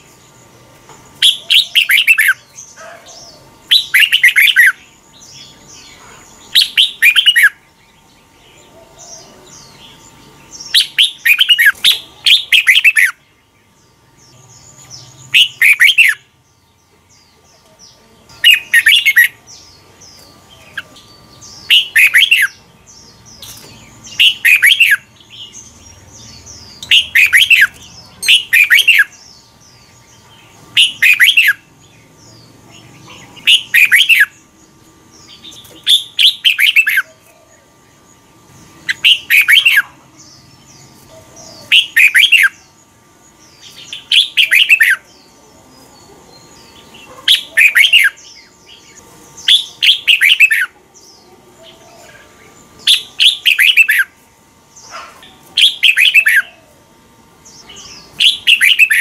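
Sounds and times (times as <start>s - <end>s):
bird singing whistled notes: 1.2s - 7.6s, 9.0s - 13.2s, 14.4s - 16.3s, 18.4s - 29.9s, 30.7s - 31.7s, 33.4s - 34.4s, 35.2s - 37.1s, 38.9s - 42.7s, 43.4s - 45.3s, 46.4s - 50.8s, 52.8s - 54.2s, 55.6s - 56.7s, 57.5s - 59.0s.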